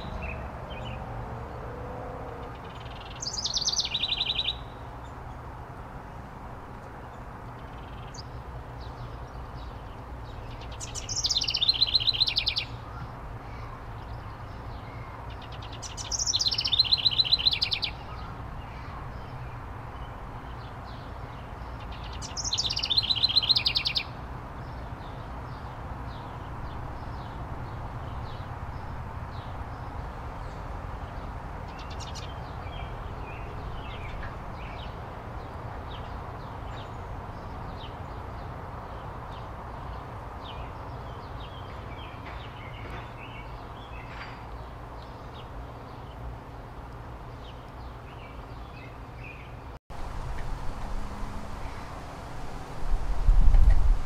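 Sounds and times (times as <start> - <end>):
house wren singing: 10.5 - 12.8.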